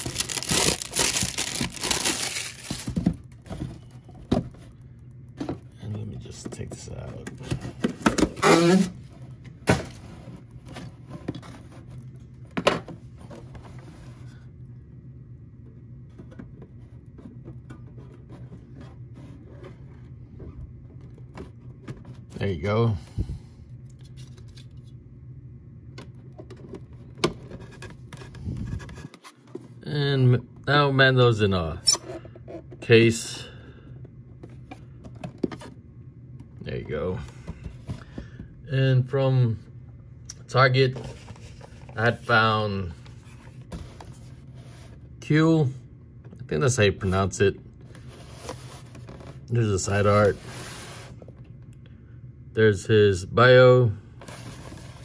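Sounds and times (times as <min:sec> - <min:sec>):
plastic case crackling and scraping: 0:00.0 - 0:09.2
low steady hum: 0:00.0 - 0:55.0.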